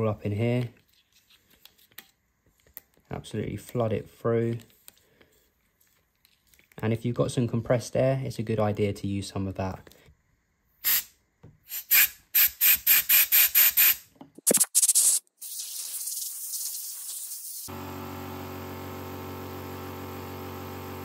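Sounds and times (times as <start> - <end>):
compressed air blasts: 10.8 - 11.1, 11.7 - 17.7.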